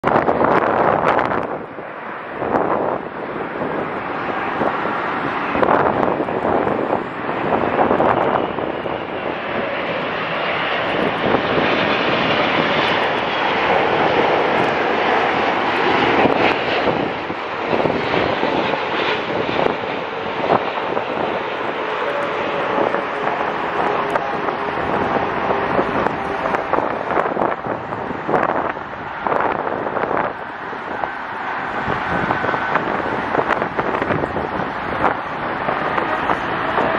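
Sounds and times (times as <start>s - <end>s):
jet airliner passing overhead: 0.0s - 36.9s.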